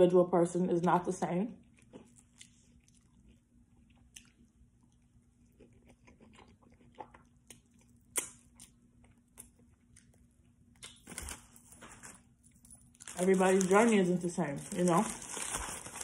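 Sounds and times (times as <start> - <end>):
person chewing crunchy food: 1.6 - 11.4.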